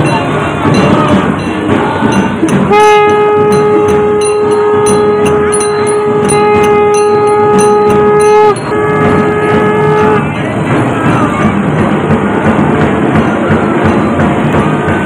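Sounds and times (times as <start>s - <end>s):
rhythmic percussion clashing: 0.0s - 15.0s
long horn blast: 2.6s - 10.4s.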